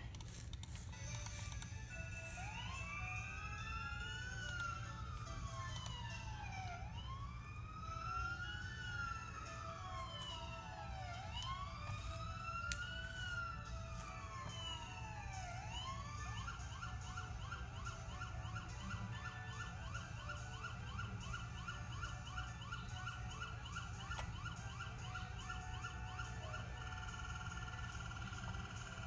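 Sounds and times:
fire engine siren: 0.8s - 29.0s.

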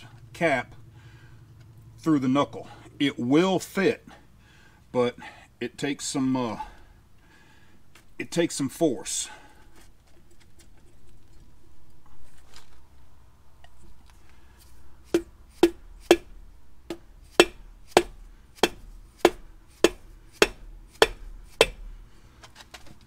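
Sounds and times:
hammer striking metal shaft: 15.1s - 22.0s.

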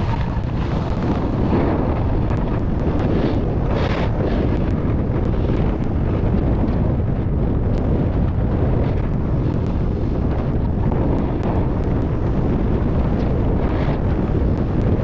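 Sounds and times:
skis scraping on snow: 0.0s - 6.8s
wind buffeting microphone: 0.0s - 15.0s.

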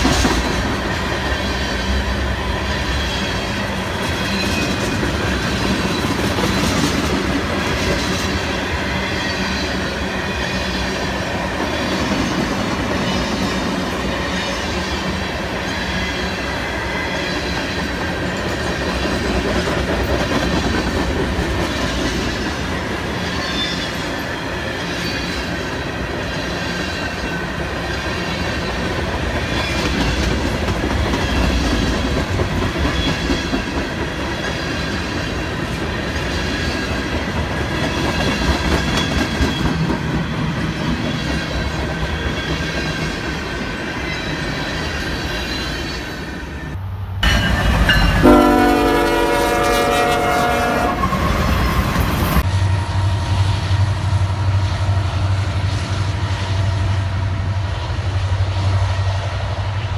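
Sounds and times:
train wheels clattering over rail joints: 26.2s - 46.1s.

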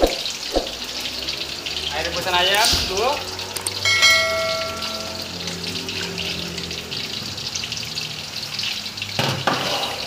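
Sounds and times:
stock hissing and bubbling in wok: 0.0s - 3.8s, 5.2s - 10.0s
metal clang: 3.8s - 5.2s.

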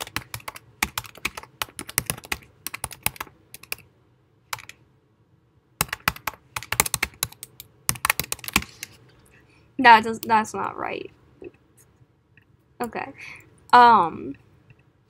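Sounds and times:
typing on computer keyboard: 0.0s - 3.8s, 4.5s - 4.8s, 5.8s - 8.9s.

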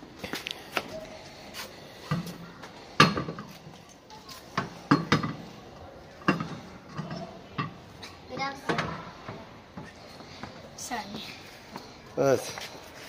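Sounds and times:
steel wheel knocking and clunking: 4.5s - 5.5s, 6.2s - 10.6s.

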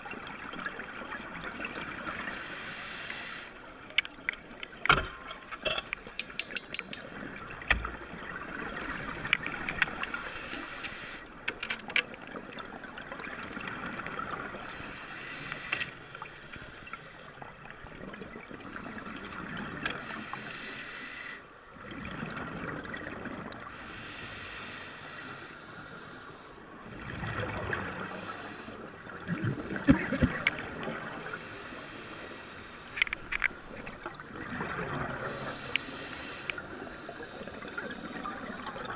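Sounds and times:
hissing regulator inhalations: 1.6s - 3.6s, 8.5s - 11.5s, 14.6s - 17.4s, 20.0s - 21.5s, 23.7s - 27.1s, 27.9s - 28.9s, 30.9s - 34.2s, 35.2s - 38.7s
small clicks and crackles: 3.8s - 7.9s, 9.0s - 12.6s, 15.4s - 17.0s, 32.8s - 34.0s
bubbling exhalations: 29.3s - 30.8s.

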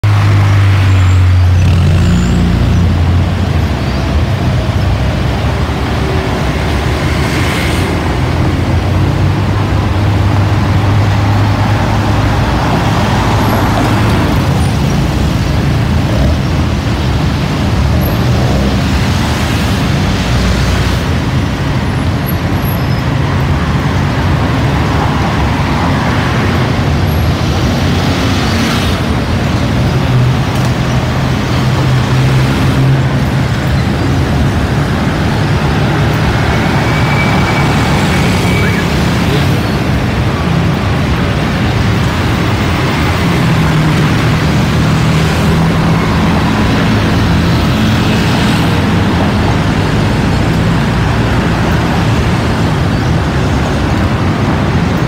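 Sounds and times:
jet engine roar: 3.5s - 21.5s, 30.4s - 55.0s.

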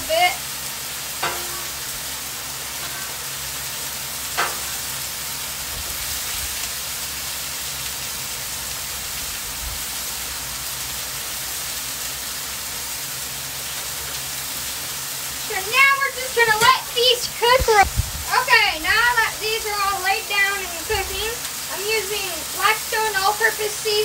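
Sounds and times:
food sizzling on a griddle: 0.0s - 24.0s
metal spatula clink: 1.2s - 1.8s, 4.4s - 4.8s.

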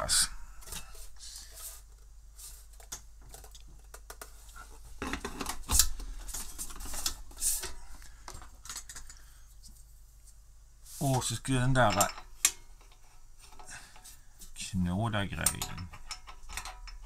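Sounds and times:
low steady hum: 0.0s - 17.0s
metal and plastic clicks and knocks: 15.4s - 17.0s.

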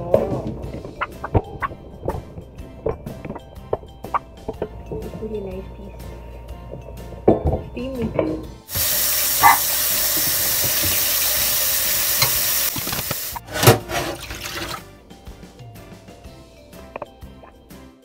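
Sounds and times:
tap water running into steel bowl: 8.7s - 14.8s.

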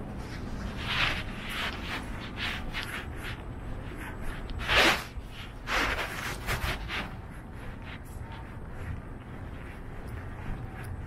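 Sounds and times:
footsteps on tile floor: 0.0s - 11.0s
low steady rumble: 0.0s - 11.0s.

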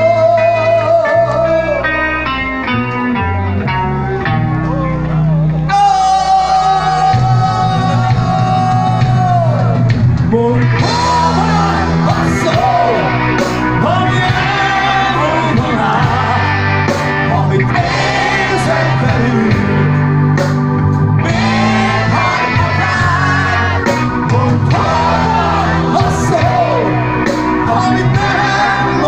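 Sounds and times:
man singing into a microphone: 0.0s - 1.9s, 5.7s - 13.2s, 13.8s - 16.6s, 17.2s - 20.0s, 21.2s - 27.0s, 27.6s - 29.0s
bass guitar: 0.0s - 29.0s
drums: 0.0s - 29.0s
electric guitar: 0.0s - 29.0s
keyboard: 0.0s - 29.0s.

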